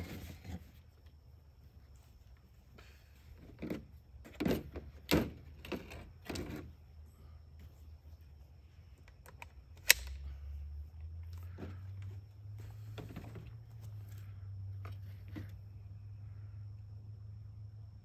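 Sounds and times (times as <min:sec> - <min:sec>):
sharp metallic click: 0:09.2 - 0:10.2.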